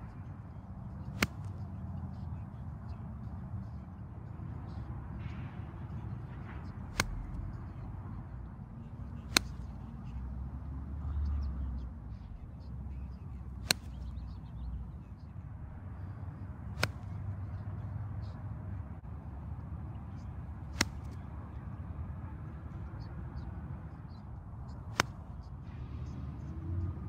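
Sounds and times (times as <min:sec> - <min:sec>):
golf iron striking balls: 0:01.1 - 0:01.6, 0:06.7 - 0:07.7, 0:09.2 - 0:09.8, 0:13.6 - 0:14.6, 0:16.7 - 0:17.1, 0:20.7 - 0:21.2, 0:24.9 - 0:25.3.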